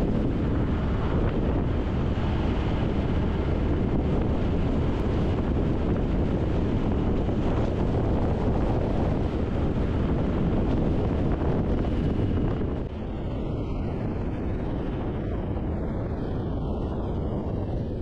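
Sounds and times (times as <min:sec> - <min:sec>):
motorcycle cruising: 0:00.0 - 0:13.2
road noise: 0:00.0 - 0:18.0
wind roar over microphone: 0:00.0 - 0:18.0.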